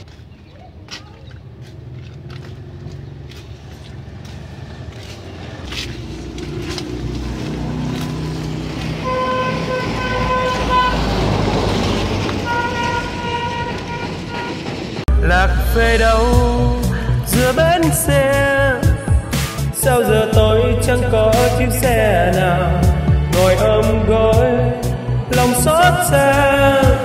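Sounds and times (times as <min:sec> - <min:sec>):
bus engine running: 0:00.0 - 0:27.0
vehicle horn short toots: 0:09.0 - 0:11.1, 0:12.4 - 0:14.6.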